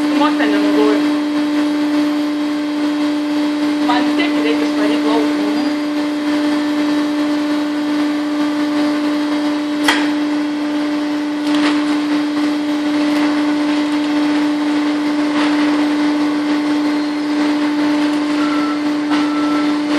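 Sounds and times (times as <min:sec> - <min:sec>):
factory machinery hum: 0:00.0 - 0:19.9
high steady tone: 0:15.9 - 0:19.9.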